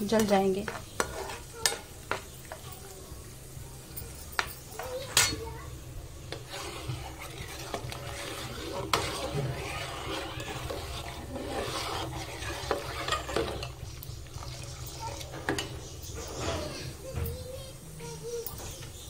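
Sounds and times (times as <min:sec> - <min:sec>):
spoon scraping a pan: 0:00.0 - 0:02.7, 0:04.3 - 0:05.5, 0:06.2 - 0:17.0
nuts sizzling in a pan: 0:00.0 - 0:19.0
spoon tapping against a pan: 0:00.2 - 0:02.7, 0:04.3 - 0:05.4.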